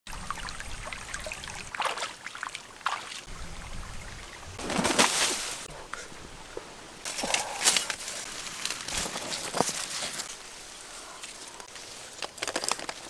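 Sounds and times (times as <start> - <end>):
water trickling over stones: 0.1 - 4.6.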